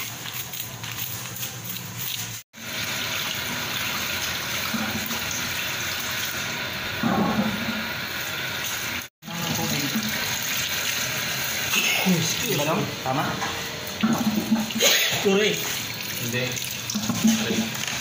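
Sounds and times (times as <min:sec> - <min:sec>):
tap water running into sink: 0:14.0 - 0:18.0.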